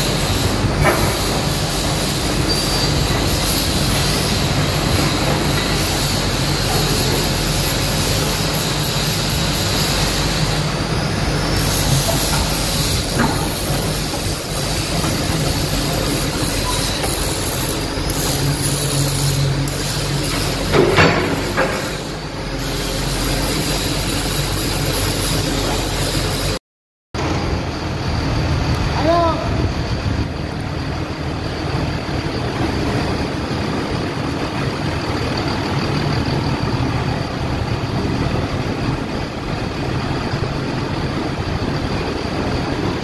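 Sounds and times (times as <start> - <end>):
excavator diesel engine running: 0.0 - 26.6, 27.2 - 43.0
high whine: 27.2 - 43.0.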